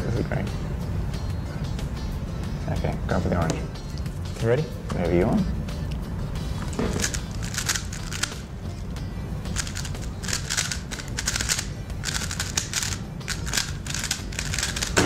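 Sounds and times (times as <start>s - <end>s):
speed cube clicking: 7.0s - 8.5s, 9.5s - 15.0s.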